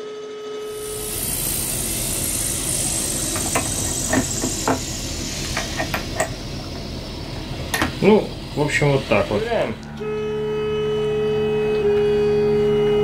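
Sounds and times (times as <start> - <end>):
steady hiss: 0.7 - 9.8.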